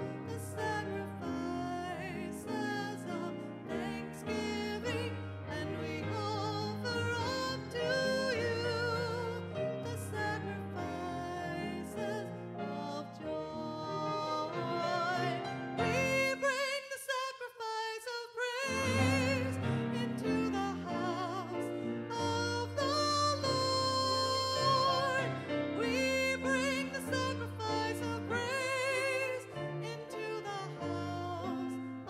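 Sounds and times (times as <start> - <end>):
grand piano accompaniment: 0.0 - 16.8, 18.6 - 32.0
woman singing with vibrato: 22.1 - 31.5.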